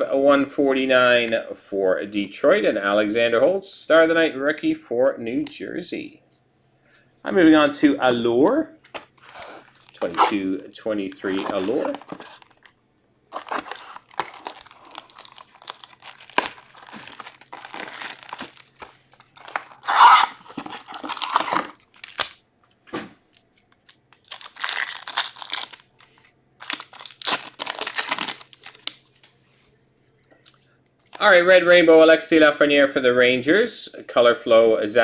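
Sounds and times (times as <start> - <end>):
plastic wrappers crinkling and tearing: 9.2 - 10.3, 11.1 - 22.4, 23.3 - 29.3.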